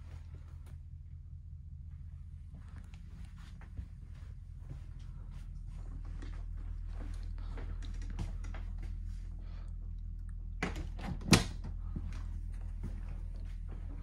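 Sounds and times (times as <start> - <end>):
steady low hum: 0.0 - 14.0
light footsteps: 1.9 - 9.7, 11.8 - 14.0.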